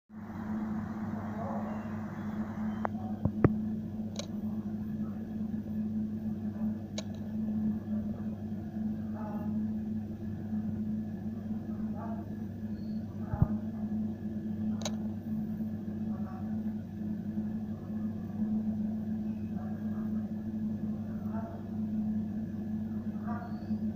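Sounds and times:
incubator fan and motor hum: 0:00.1 - 0:23.9
sharp clicks: 0:02.8 - 0:04.4, 0:07.0 - 0:07.3, 0:14.8 - 0:15.0.

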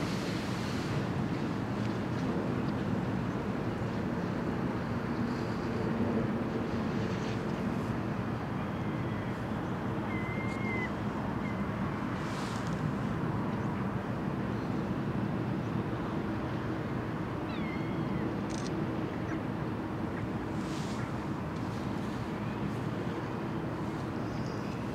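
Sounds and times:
water noise: 0:00.0 - 0:05.1
ships' engines humming: 0:00.0 - 0:24.9
wind: 0:00.0 - 0:24.9
bird calling: 0:10.1 - 0:11.6.

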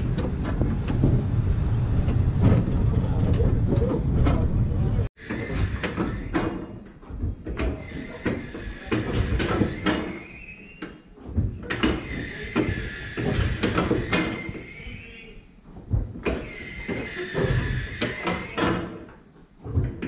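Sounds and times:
streetcar wheels rolling on track: 0:00.0 - 0:05.1
clunks and knocks: 0:00.0 - 0:10.2, 0:10.8 - 0:14.5, 0:15.7 - 0:20.0
wheel squeals: 0:01.6 - 0:06.9, 0:07.6 - 0:11.1, 0:11.8 - 0:15.4, 0:16.3 - 0:19.0.

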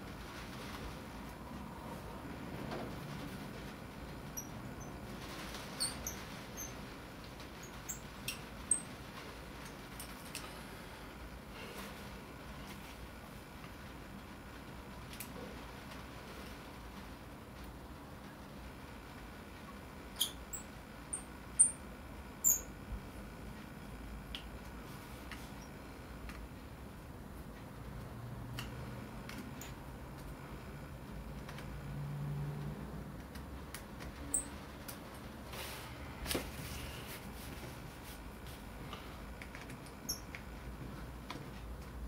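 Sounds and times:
small metal parts squeaking and clicking: 0:04.3 - 0:09.0, 0:20.1 - 0:21.8, 0:22.4 - 0:22.7, 0:34.2 - 0:34.7, 0:40.0 - 0:40.4.

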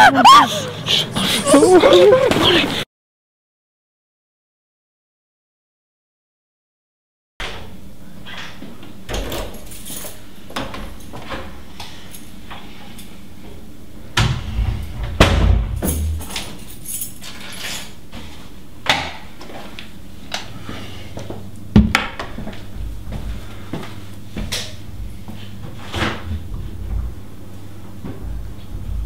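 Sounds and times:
steady low hum: 0:09.8 - 0:17.3, 0:19.5 - 0:29.0.

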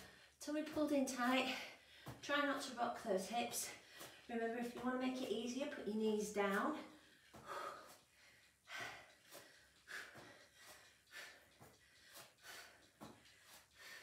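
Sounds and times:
woman breathing hard: 0:03.7 - 0:04.3, 0:06.9 - 0:14.0.

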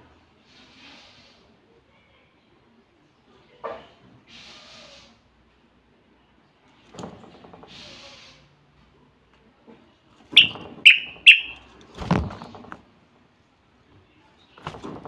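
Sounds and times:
bird whistled notes: 0:10.4 - 0:11.6.

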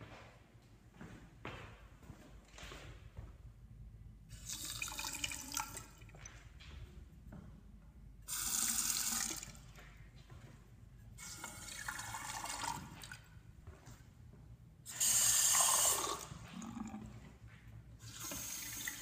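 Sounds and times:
faucet running into sink: 0:08.3 - 0:09.6, 0:11.2 - 0:13.2, 0:14.9 - 0:17.0, 0:18.1 - 0:19.0.

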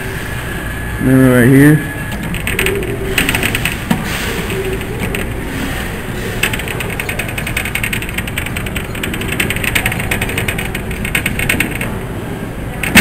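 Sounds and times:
rapid ticking: 0:02.2 - 0:05.4, 0:06.4 - 0:12.0.

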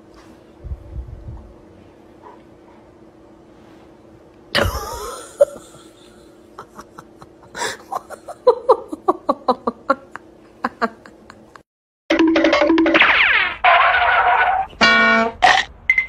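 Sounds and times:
person laughing: 0:04.6 - 0:11.6.

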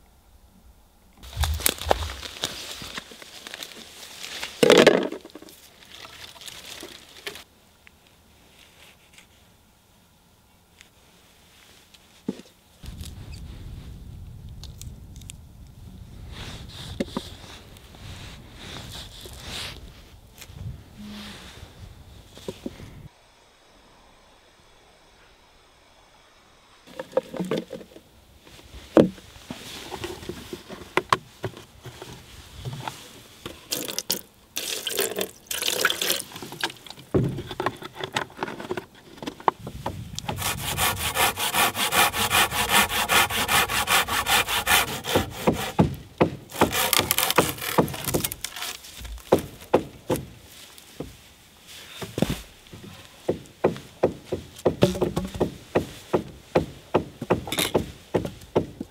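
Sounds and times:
knocks and scrapes of wood: 0:01.2 - 0:05.6, 0:26.9 - 0:33.6, 0:36.4 - 0:58.9
hand saw cutting wood: 0:40.2 - 0:48.8.

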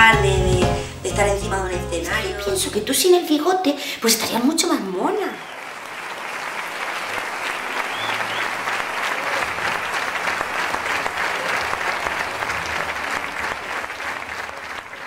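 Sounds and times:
audience applauding: 0:05.2 - 0:15.0.

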